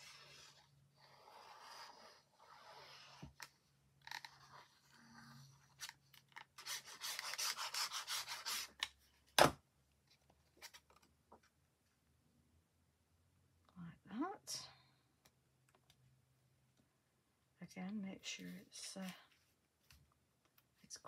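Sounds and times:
paper and card scraping: 0:05.6 - 0:08.8.

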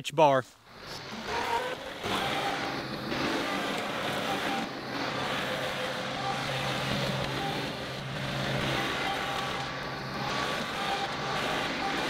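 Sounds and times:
diesel tractor engine running: 0:00.7 - 0:12.0.

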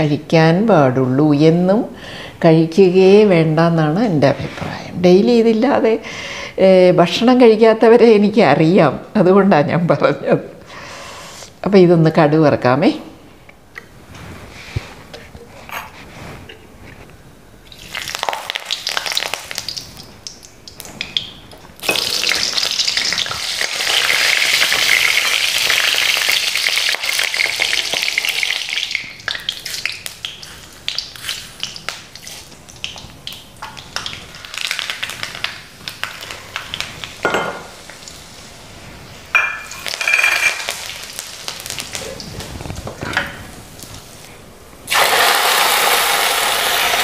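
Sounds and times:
chillies and leaves sizzling: 0:14.1 - 0:47.0
seeds spluttering in hot oil: 0:17.7 - 0:38.4, 0:44.9 - 0:47.0.

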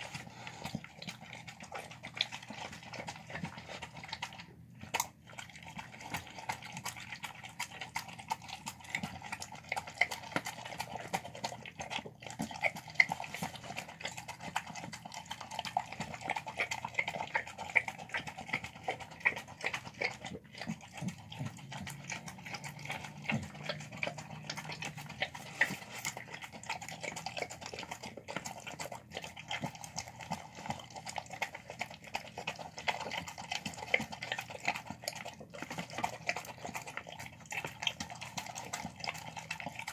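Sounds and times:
dog licking and chewing food: 0:00.0 - 0:39.9.

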